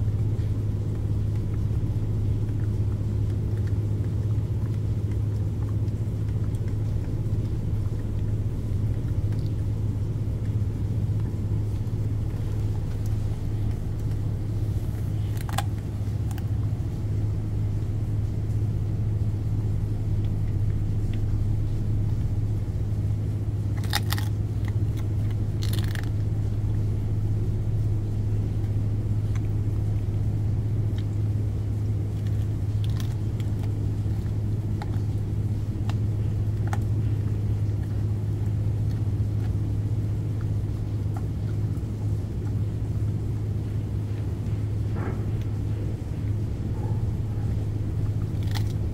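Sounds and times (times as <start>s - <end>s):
dog chewing food: 0.0s - 48.9s
ship engine drone: 0.0s - 48.9s.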